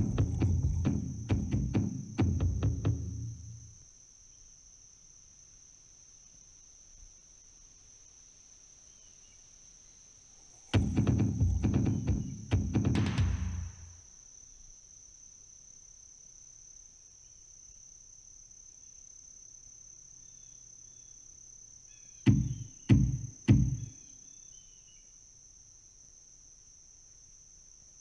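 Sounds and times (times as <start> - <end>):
heavy low thumps: 0.0 - 3.6, 10.8 - 13.9, 22.3 - 23.8
faint chirps: 0.0 - 4.6, 7.8 - 14.7, 20.2 - 25.3.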